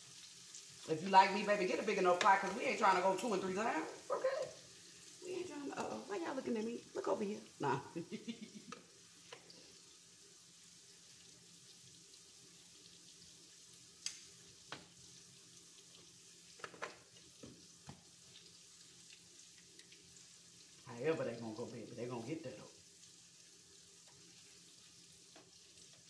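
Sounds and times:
fries sizzling in skillet: 0:00.0 - 0:26.0.

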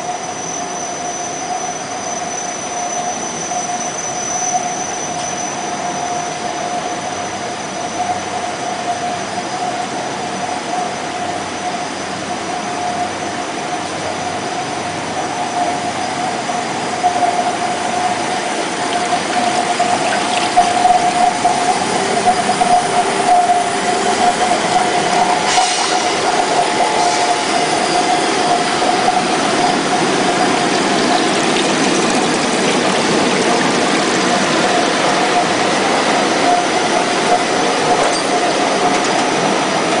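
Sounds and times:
steady machine whine: 0:09.5 - 0:40.0.

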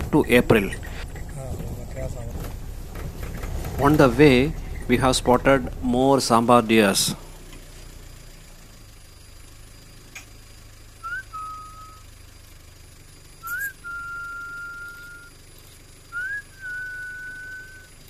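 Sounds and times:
low steady hum: 0:00.0 - 0:18.0
rising whistles: 0:11.0 - 0:12.2, 0:13.4 - 0:15.4, 0:16.1 - 0:18.0.

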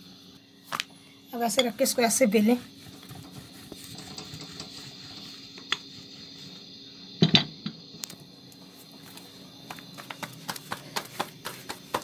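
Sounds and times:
rolling pin rubbing on dough: 0:01.8 - 0:06.8, 0:09.7 - 0:12.0.

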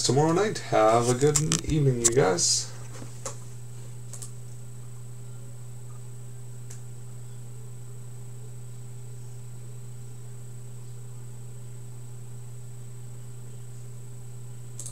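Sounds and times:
low electrical hum: 0:00.0 - 0:14.9
faint high-pitched whine: 0:04.4 - 0:14.7.

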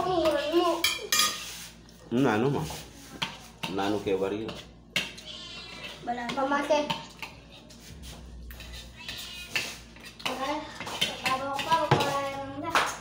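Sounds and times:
spoons clinking on plates: 0:00.2 - 0:01.6
people talking: 0:10.3 - 0:13.0.

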